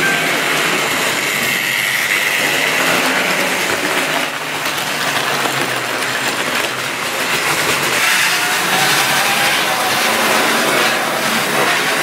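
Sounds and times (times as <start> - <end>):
model train wheels rattling on rails: 0.0 - 12.0.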